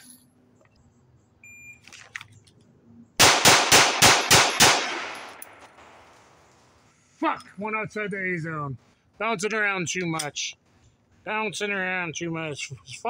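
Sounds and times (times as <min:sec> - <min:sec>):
pistol shots with echo: 0:03.2 - 0:06.0.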